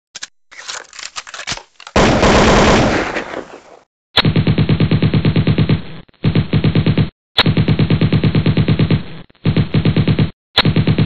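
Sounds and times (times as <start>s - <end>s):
automatic gunfire: 2.0s - 3.6s.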